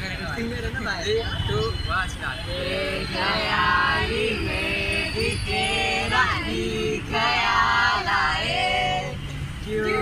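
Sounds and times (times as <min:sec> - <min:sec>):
street traffic noise: 0:00.0 - 0:10.0
group singing unaccompanied: 0:02.4 - 0:10.0.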